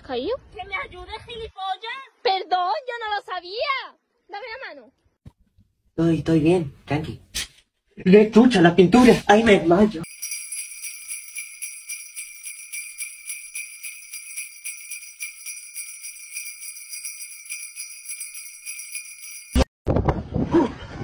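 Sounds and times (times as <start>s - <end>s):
jingle bells shaken: 10.0s - 19.7s.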